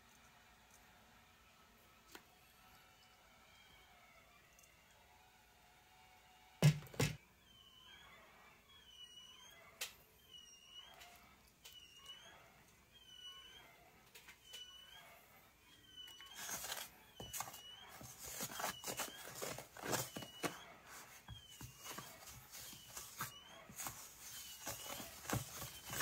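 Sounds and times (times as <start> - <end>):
faint high chirp: 7.3 - 26.0.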